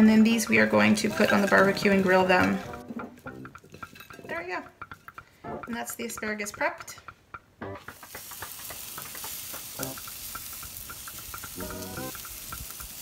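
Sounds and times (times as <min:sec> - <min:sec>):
food sizzling on a grill: 0:07.9 - 0:13.0.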